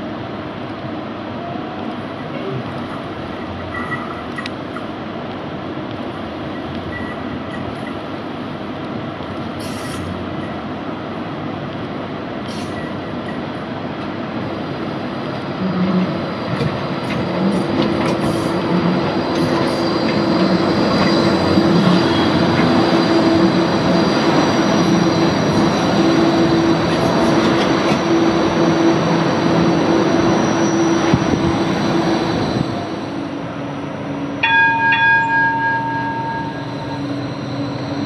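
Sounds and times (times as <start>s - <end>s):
tram passing on rails: 0.0s - 38.0s.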